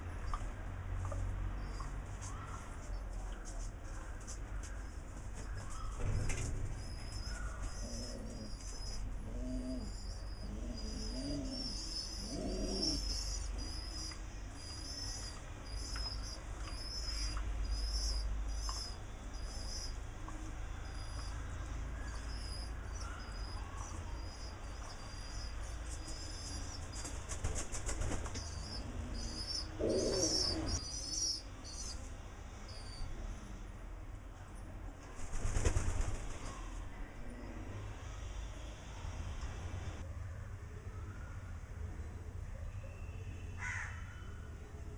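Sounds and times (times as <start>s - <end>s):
pigeons cooing: 6.8s - 14.1s, 28.5s - 30.8s
pigeons flapping wings: 27.0s - 28.4s, 35.2s - 36.5s.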